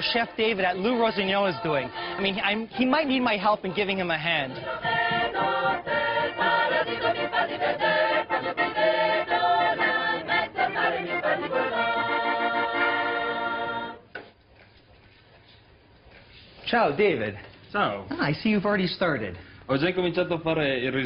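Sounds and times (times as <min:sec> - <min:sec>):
choir singing in harmony: 0:00.0 - 0:14.0.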